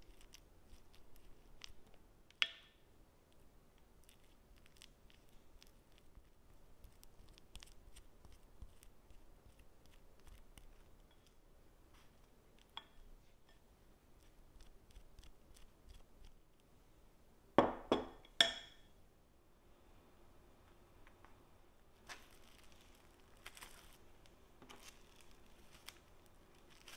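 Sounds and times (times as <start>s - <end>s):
spoon scraping and clicking: 6.8s - 11.4s.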